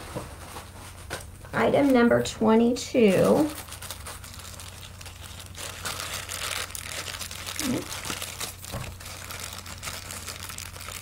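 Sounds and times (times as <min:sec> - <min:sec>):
packaging crinkling and rustling: 0:03.1 - 0:11.0.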